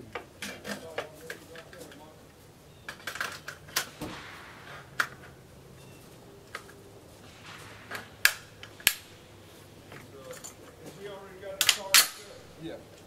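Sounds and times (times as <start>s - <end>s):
rifle metallic clicks: 6.5s - 9.2s.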